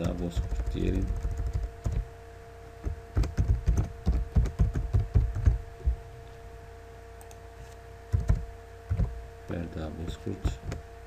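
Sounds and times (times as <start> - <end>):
typing on computer keyboard: 0.0 - 2.0, 2.8 - 5.6, 8.1 - 9.1.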